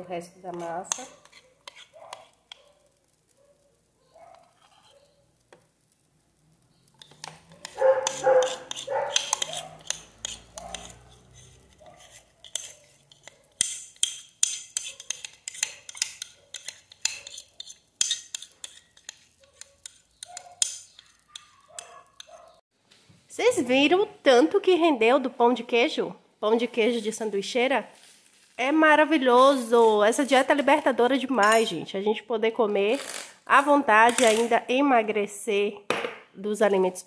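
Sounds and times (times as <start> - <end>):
fork and spoon clinking on glass bowl: 7.0 - 22.6.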